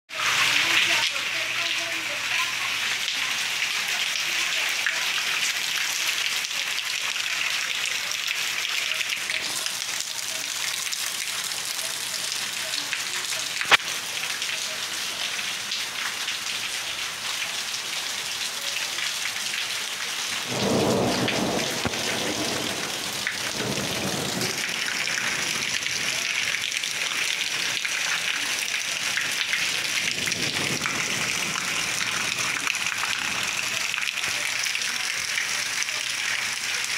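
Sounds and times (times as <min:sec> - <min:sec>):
steady rain hiss: 0:00.2 - 0:36.9
thunder rumble: 0:20.4 - 0:26.1, 0:30.1 - 0:32.6.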